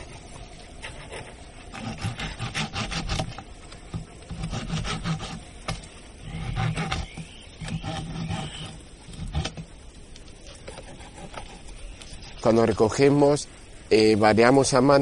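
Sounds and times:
hand saw rasping through wood: 0:00.8 - 0:03.4, 0:04.3 - 0:09.6, 0:10.7 - 0:11.7.

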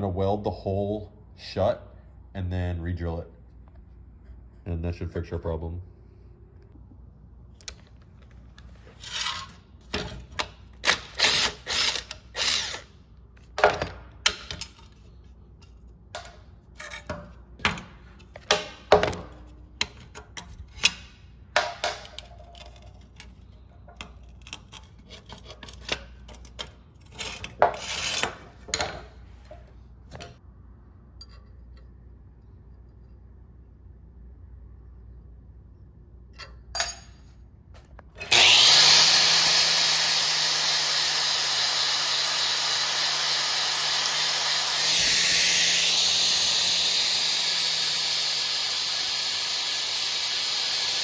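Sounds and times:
metal parts and tools clanking: 0:21.6 - 0:30.4, 0:36.3 - 0:37.3.

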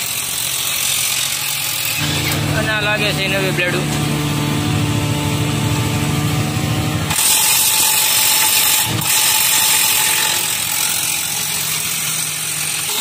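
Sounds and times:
low hum: 0:02.0 - 0:09.2
wrench mechanical noise: 0:07.1 - 0:13.0.

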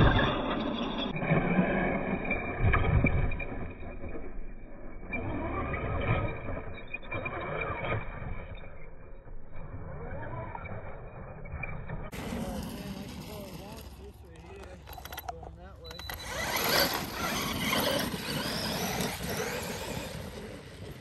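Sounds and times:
tyres churning sand: 0:12.1 - 0:21.0
electric motor whining: 0:15.9 - 0:21.0.

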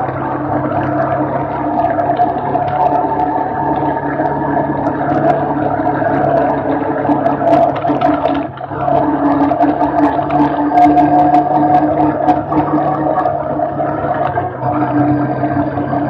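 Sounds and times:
quad bike engine droning: 0:00.0 - 0:16.0
small clicks and knocks: 0:00.7 - 0:11.1.

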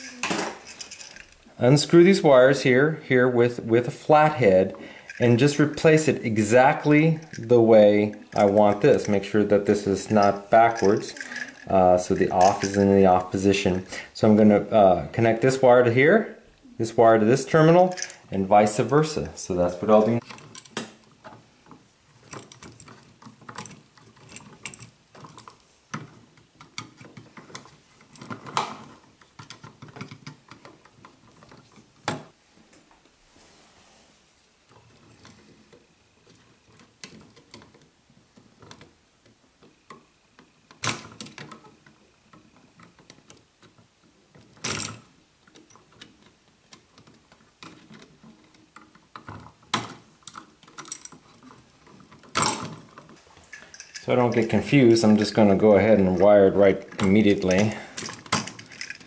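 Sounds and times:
small clicks taps and rattles: 0:20.0 - 0:32.3, 0:34.7 - 0:59.0.

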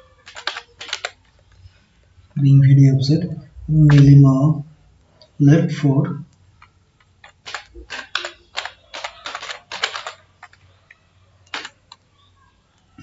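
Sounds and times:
computer keyboard typing: 0:00.0 - 0:01.7, 0:03.8 - 0:04.2, 0:06.6 - 0:12.8.

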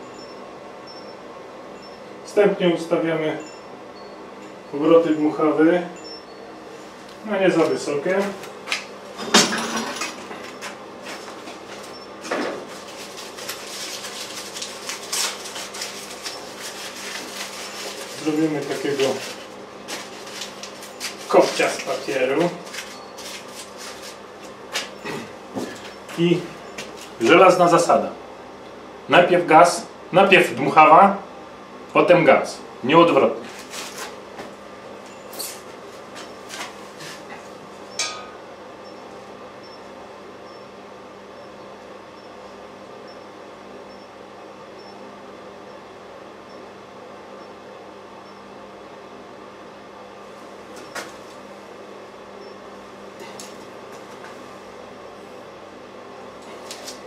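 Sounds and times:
blower rushing air with hum: 0:00.0 - 0:57.0
rustles: 0:12.6 - 0:25.0.

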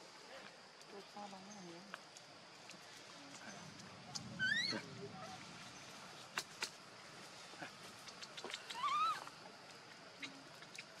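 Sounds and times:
monkey squealing cry: 0:04.4 - 0:04.9, 0:08.5 - 0:09.3.

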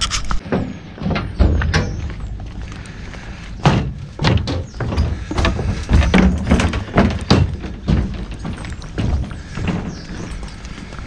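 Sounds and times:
knocks and thuds: 0:00.4 - 0:02.4, 0:03.6 - 0:10.3.

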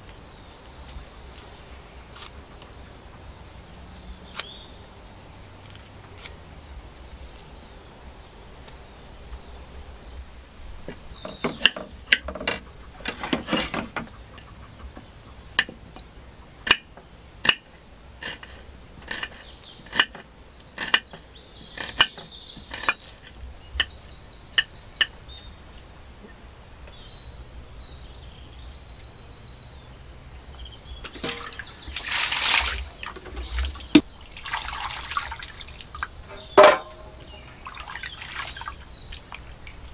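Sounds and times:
rustling scrape: 0:13.0 - 0:14.0.

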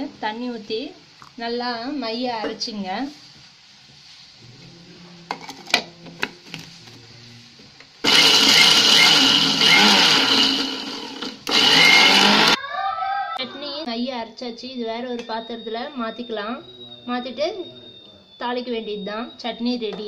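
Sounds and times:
mixer grinder wet-grinding: 0:08.0 - 0:12.6.

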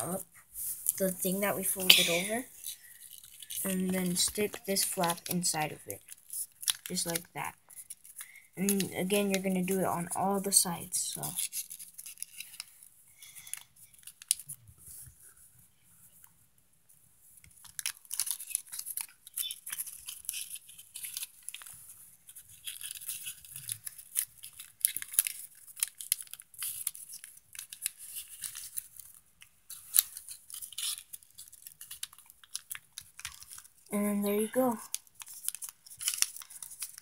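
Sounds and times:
paper crinkling and rustling: 0:00.1 - 0:15.5, 0:17.4 - 0:33.9, 0:34.6 - 0:37.0.

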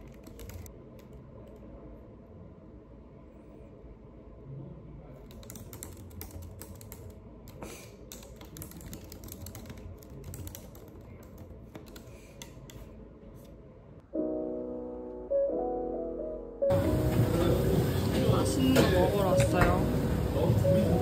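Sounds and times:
keyboard typing: 0:00.0 - 0:01.6, 0:05.2 - 0:12.8
background piano music: 0:14.0 - 0:21.0.

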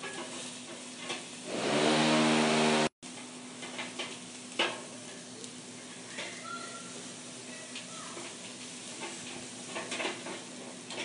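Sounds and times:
meat sizzling on charcoal grill: 0:00.0 - 0:11.0
loud engine-like drone: 0:01.4 - 0:02.9.

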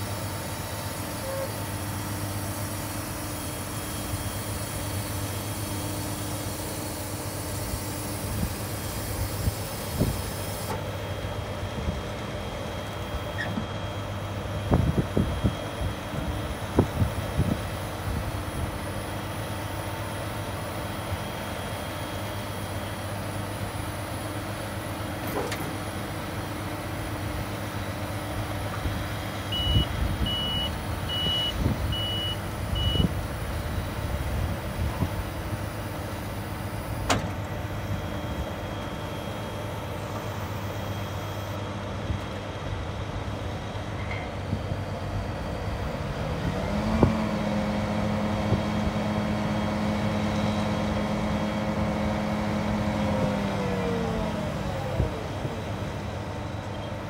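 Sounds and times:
short electronic warning beeps: 0:29.5 - 0:33.2.

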